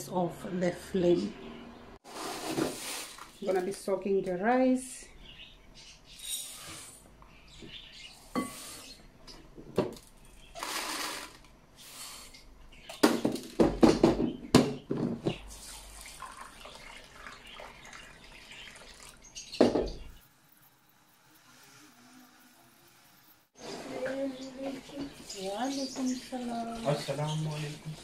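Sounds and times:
water pouring onto rice: 15.6 - 19.2.

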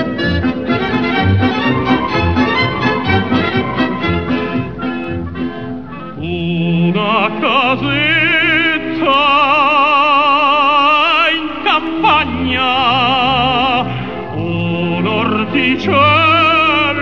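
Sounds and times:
operatic singing: 0.0 - 5.3, 5.9 - 17.0
instrumental accompaniment: 0.0 - 8.6.

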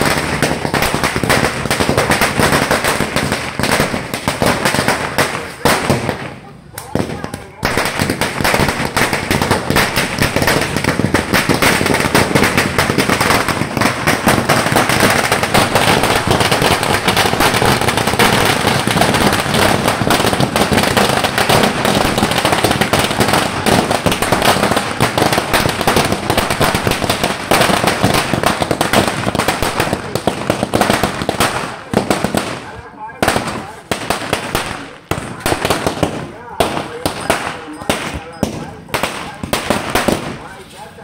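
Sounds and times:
firecrackers crackling: 0.0 - 41.0.

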